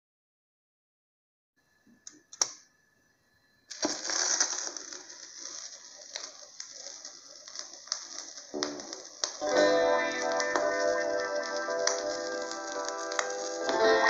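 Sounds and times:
vinyl hiss and crackle: 3.7s - 14.0s.

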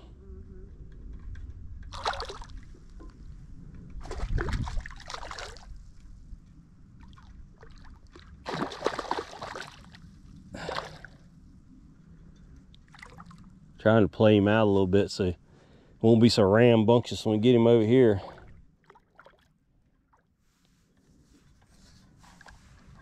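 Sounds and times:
fish splashing at water surface: 1.9s - 2.6s, 4.0s - 5.7s, 8.4s - 10.0s.

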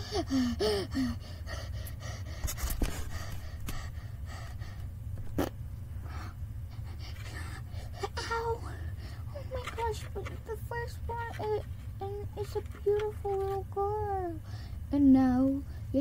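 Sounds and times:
person panting and gasping: 0.0s - 4.9s.

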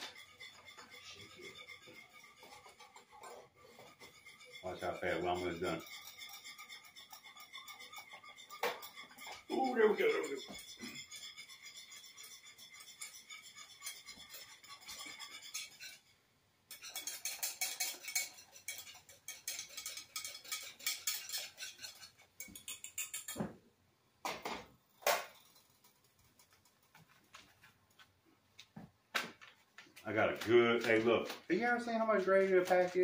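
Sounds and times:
utensil clattering against pot: 0.0s - 16.1s, 16.7s - 23.6s.

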